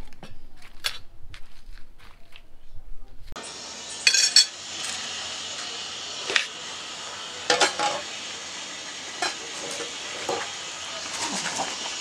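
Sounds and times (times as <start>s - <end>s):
steady hiss: 3.4s - 12.0s
cutlery clinking on plate: 4.0s - 4.5s, 7.5s - 8.0s, 9.2s - 9.4s.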